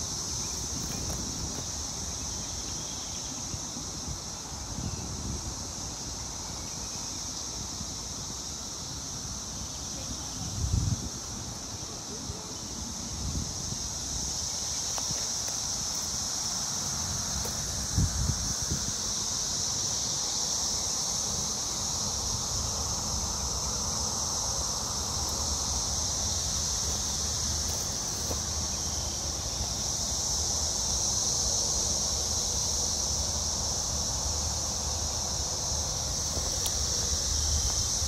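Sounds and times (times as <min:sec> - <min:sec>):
cicadas buzzing: 0:00.0 - 0:38.0
wind rumble on microphone: 0:00.2 - 0:15.3, 0:17.0 - 0:19.9.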